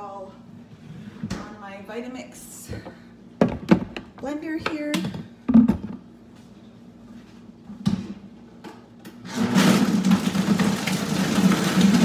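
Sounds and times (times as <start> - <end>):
blender container clunking: 9.3 - 12.0.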